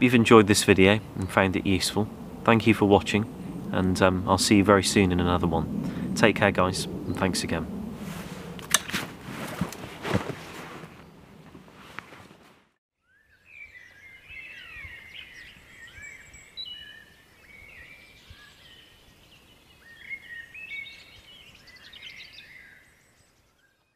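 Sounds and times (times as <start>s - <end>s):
birds singing: 0.0s - 7.6s, 13.0s - 23.9s.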